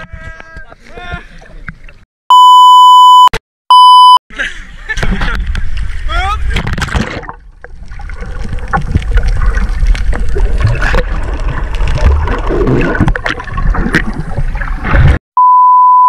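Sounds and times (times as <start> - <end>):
steady bleep tone: 2.3 - 4.2, 15.4 - 16.0
underwater bubbles and rushing water: 5.1 - 15.2.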